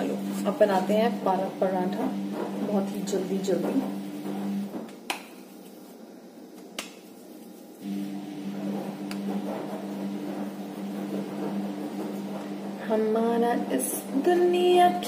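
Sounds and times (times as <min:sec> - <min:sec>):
washing machine motor hum: 0:00.0 - 0:05.0, 0:07.8 - 0:15.0.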